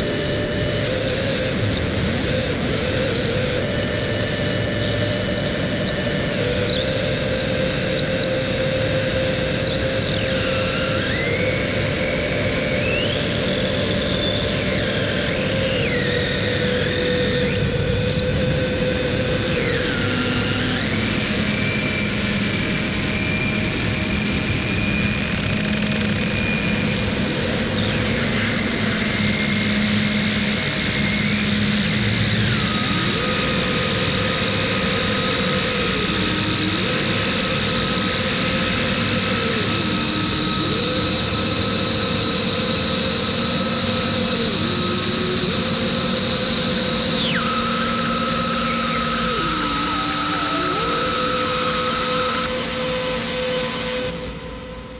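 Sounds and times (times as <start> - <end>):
distorted noise wall: 0.0 - 54.9
high whining tones: 0.0 - 54.9
low drone: 0.0 - 54.9.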